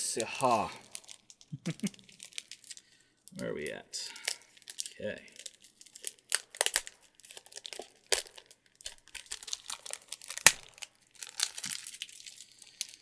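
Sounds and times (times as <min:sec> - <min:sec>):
cellophane wrap crinkling: 0:00.0 - 0:03.4, 0:04.1 - 0:13.0.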